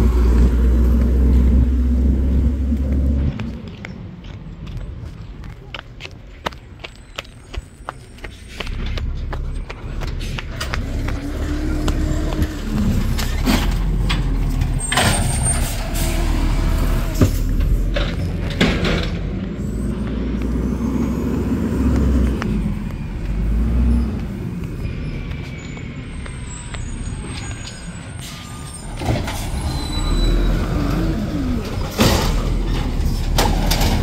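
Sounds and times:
garbage truck engine revving: 8.8s - 24.6s, 28.7s - 34.0s
loud bangs of cart dumping: 31.7s - 34.0s.

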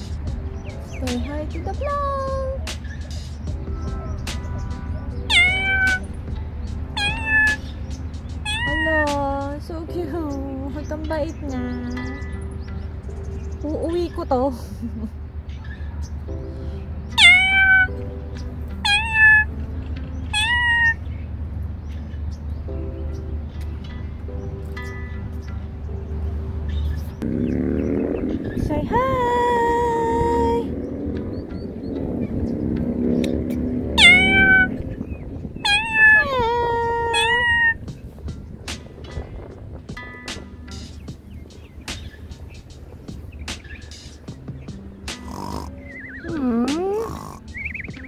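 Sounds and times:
cat meowing: 5.3s - 6.1s, 7.0s - 7.8s, 8.4s - 9.1s, 17.2s - 18.0s, 18.8s - 19.6s, 20.3s - 21.0s, 34.0s - 34.9s, 35.6s - 37.9s.

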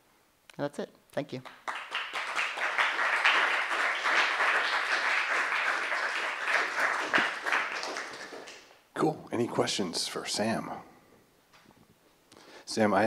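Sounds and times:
audience applauding: 1.5s - 8.8s.

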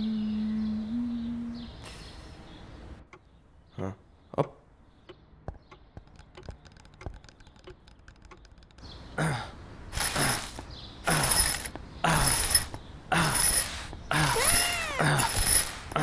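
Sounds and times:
faint scattered clicks: 5.0s - 9.1s
loud rasping ratchet strokes: 9.9s - 16.0s.

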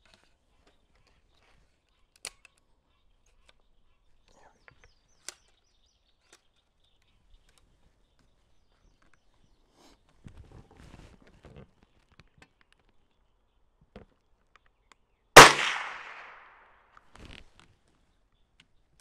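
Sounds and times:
rifle metallic clicks: 15.4s - 16.6s.

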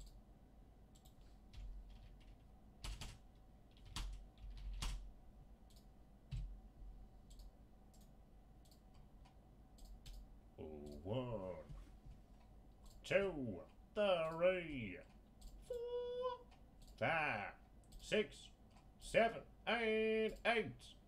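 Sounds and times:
computer keyboard and mouse clicks: 0.9s - 5.0s, 5.7s - 6.5s, 7.2s - 10.2s.

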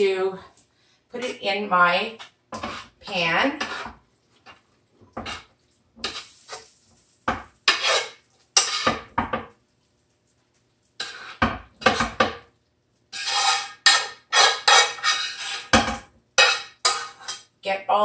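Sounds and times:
utensil scraping a frying pan: 2.0s - 9.6s, 11.0s - 12.5s, 13.1s - 17.5s.

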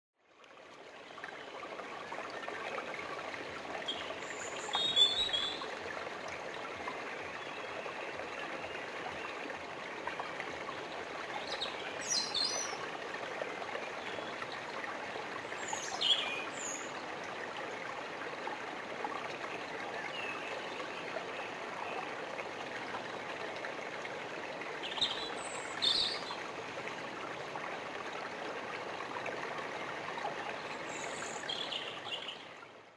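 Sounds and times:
stream babbling over rocks: 0.4s - 32.8s
songbird chirps: 3.8s - 5.7s, 11.4s - 12.8s, 15.4s - 17.0s, 24.8s - 26.5s, 30.5s - 32.8s.

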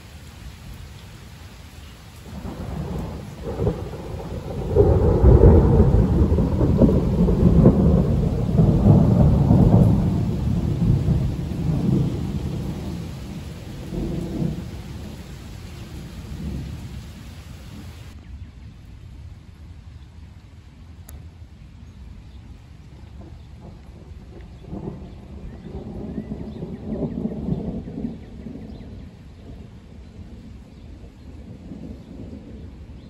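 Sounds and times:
steady rain: 0.0s - 33.0s
thunder rolling: 2.3s - 18.2s.

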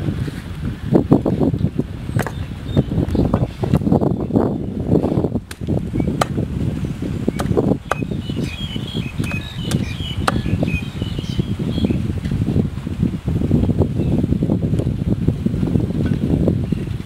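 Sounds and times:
wind on microphone: 0.0s - 17.0s
cleaver chopping on wooden block: 5.5s - 6.4s, 7.4s - 8.2s, 9.2s - 10.6s.

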